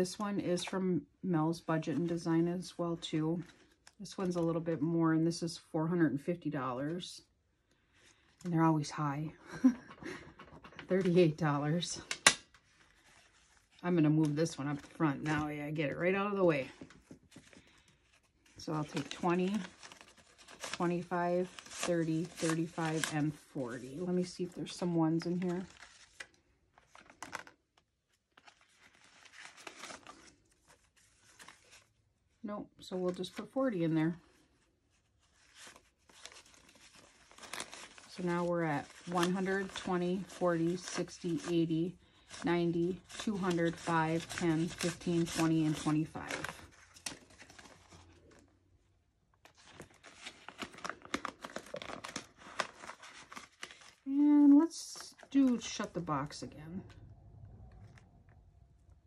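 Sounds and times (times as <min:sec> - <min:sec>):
banknotes rustling and flicking: 0:10.2 - 0:27.6, 0:35.4 - 0:48.5.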